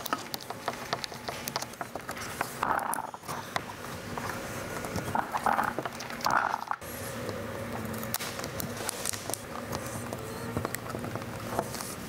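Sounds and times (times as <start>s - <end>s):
small clicks and taps: 0.0s - 3.7s.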